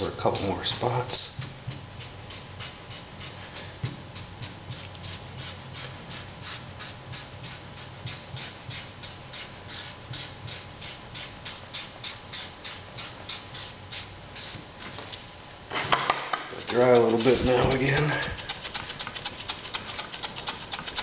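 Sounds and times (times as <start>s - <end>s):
hand rubbing over paper: 16.5s - 21.0s.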